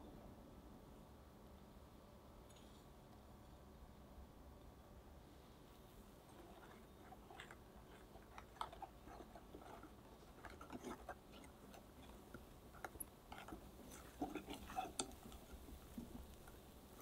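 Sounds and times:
soft wet batter sounds: 0:04.3 - 0:17.0.

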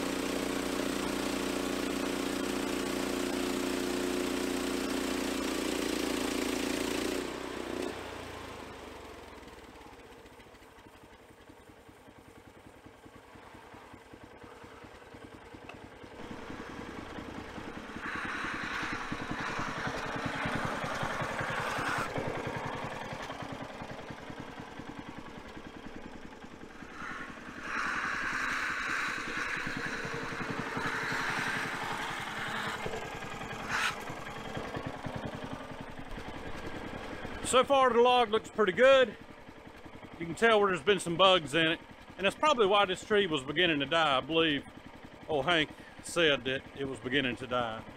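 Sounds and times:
gas engine running and idling: 0:00.0 - 0:47.9
high hissing sound: 0:16.2 - 0:22.4, 0:26.6 - 0:33.0.

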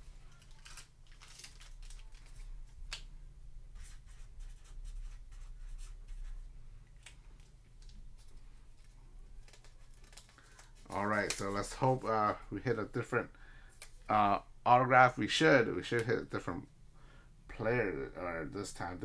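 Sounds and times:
low steady hum: 0:00.0 - 0:19.0
trading cards clicking and rustling: 0:00.2 - 0:03.1, 0:06.9 - 0:12.1.

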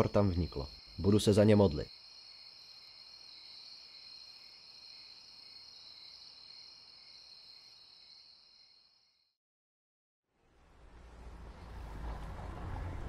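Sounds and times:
crickets trilling: 0:00.0 - 0:09.1.

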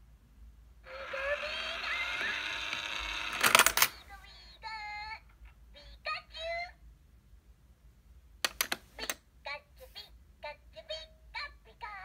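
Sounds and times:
toy electronic voice and effects: 0:00.8 - 0:05.2, 0:09.0 - 0:12.0
toy lid clattering open: 0:01.0 - 0:04.0.

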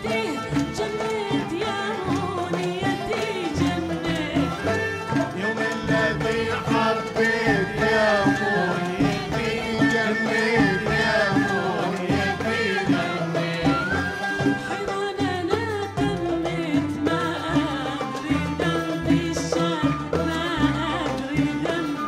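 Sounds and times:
ouds and violins melody: 0:00.0 - 0:15.4
drum beats: 0:00.0 - 0:22.0.

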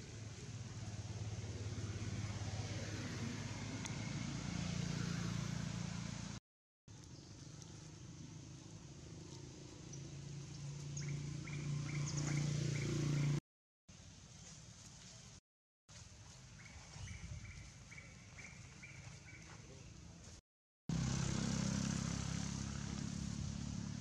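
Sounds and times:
vehicle engine humming: 0:00.0 - 0:13.4, 0:20.9 - 0:24.0
bird chirps: 0:09.9 - 0:13.4, 0:16.6 - 0:19.8.

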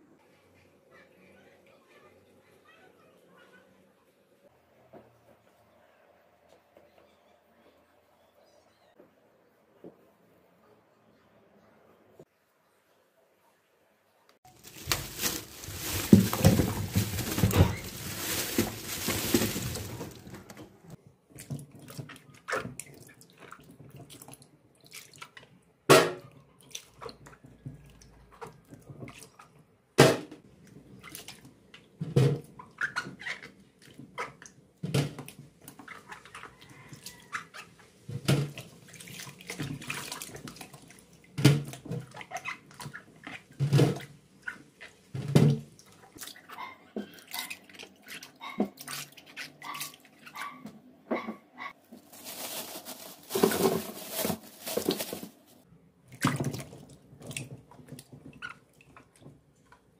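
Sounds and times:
hands sloshing apples in water: 0:14.5 - 0:25.4, 0:38.2 - 0:50.5, 0:52.0 - 0:59.4
apples knocking against basin: 0:14.6 - 0:20.8
water splashing into basin: 0:38.3 - 0:43.0, 0:56.1 - 0:59.2.

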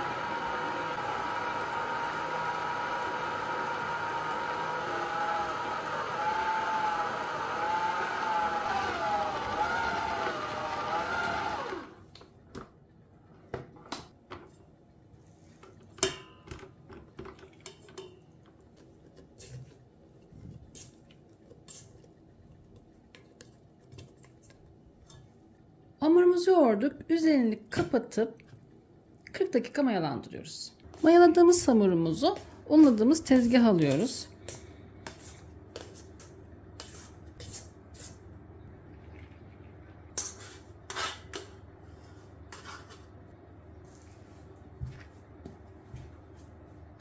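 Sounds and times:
stand mixer motor whine: 0:00.0 - 0:12.0
spatula scraping a metal bowl: 0:40.2 - 0:43.1.

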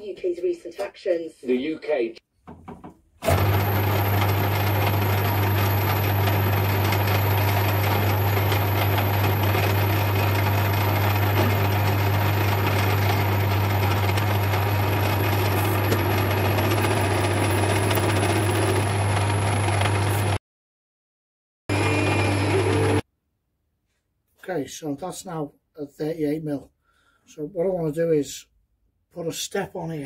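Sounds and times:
metal lathe running: 0:03.2 - 0:20.4, 0:21.7 - 0:23.0.

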